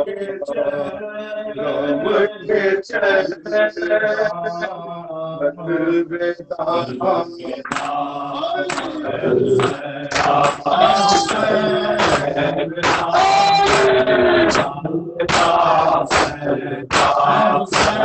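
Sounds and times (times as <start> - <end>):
man chanting into microphone: 0.0 - 18.0
men's voices chanting along: 0.0 - 18.0
chest-beating slaps: 7.6 - 8.0, 8.7 - 9.0, 9.6 - 14.7, 15.3 - 18.0.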